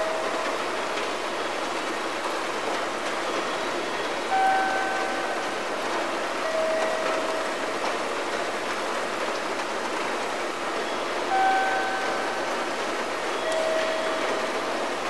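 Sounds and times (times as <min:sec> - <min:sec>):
train and platform noise: 0:00.0 - 0:15.0
brief steady tone: 0:04.3 - 0:05.4, 0:10.9 - 0:12.4, 0:13.3 - 0:14.5.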